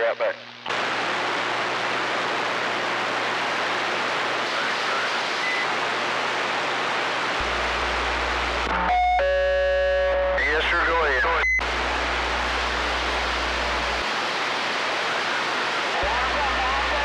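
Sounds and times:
buzzing radio tone: 0:00.0 - 0:01.2, 0:04.3 - 0:06.1, 0:07.4 - 0:17.0
radio static hiss: 0:00.0 - 0:17.0.

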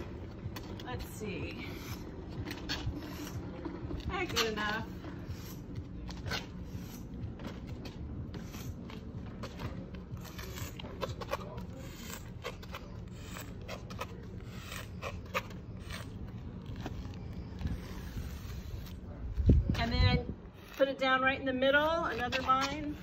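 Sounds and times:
chalk scraping on concrete: 0:01.2 - 0:07.7, 0:08.3 - 0:20.0.

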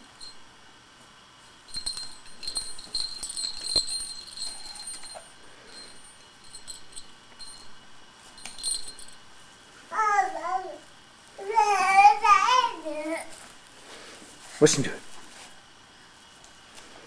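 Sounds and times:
small metal objects jingling: 0:01.7 - 0:09.3.

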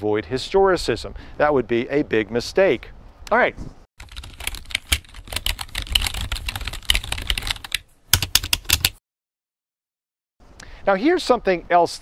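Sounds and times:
typing on computer keyboard: 0:04.0 - 0:09.0.

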